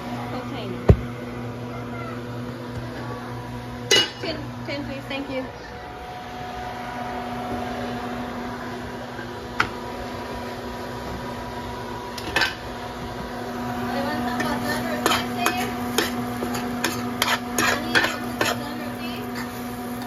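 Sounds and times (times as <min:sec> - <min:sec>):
steady electrical hum: 0:00.0 - 0:20.0
dishes and utensils clinking: 0:14.4 - 0:18.6.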